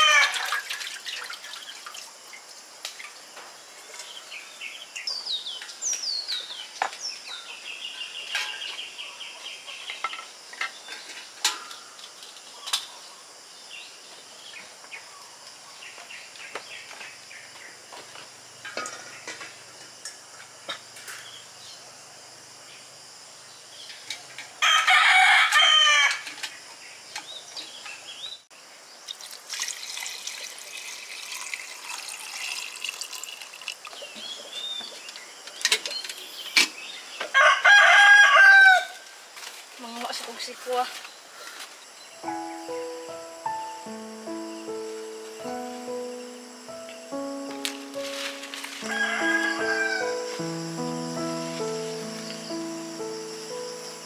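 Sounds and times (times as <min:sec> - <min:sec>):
rooster crowing: 0:00.0 - 0:00.5, 0:24.6 - 0:26.2, 0:37.3 - 0:39.1, 0:48.8 - 0:50.4
small birds chirping: 0:33.8 - 0:37.3.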